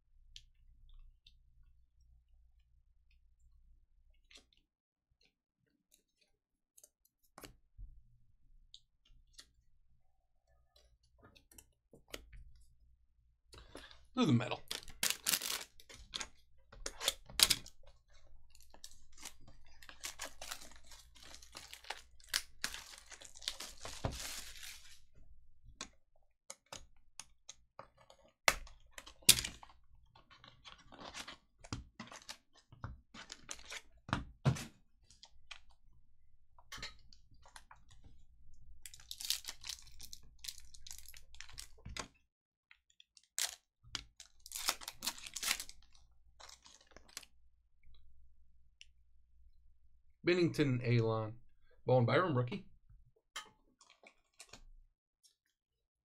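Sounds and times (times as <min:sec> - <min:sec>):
plastic packaging crinkling: 0:14.6 - 0:16.3, 0:16.9 - 0:25.1, 0:38.9 - 0:41.8, 0:44.2 - 0:47.3.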